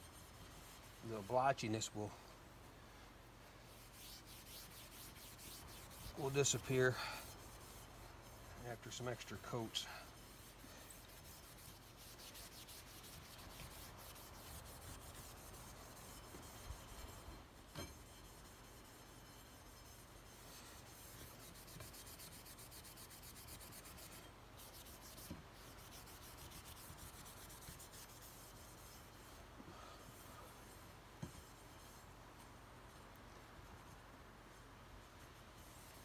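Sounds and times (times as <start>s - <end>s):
hand rubbing metal barrel: 3.7s - 32.1s.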